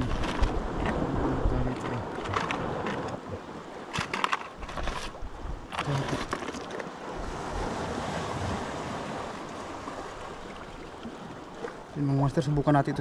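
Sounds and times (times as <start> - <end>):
wind buffeting microphone: 0.0 - 6.4
surf washing against rocks: 0.0 - 13.0.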